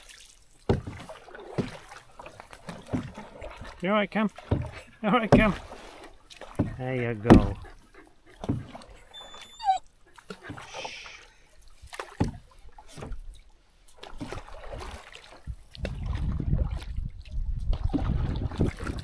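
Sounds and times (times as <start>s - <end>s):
canoe paddles splashing in water: 0.0s - 19.0s
wind buffeting microphone: 15.5s - 19.0s.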